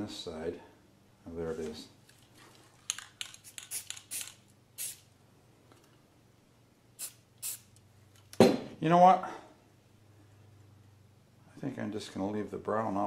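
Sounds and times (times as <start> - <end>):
spray paint can hissing: 3.3 - 5.1, 7.0 - 7.7.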